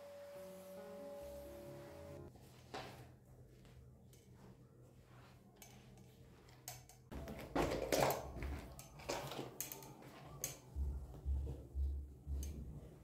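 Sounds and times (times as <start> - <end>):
mop swishing on tiled floor: 0.1 - 13.0.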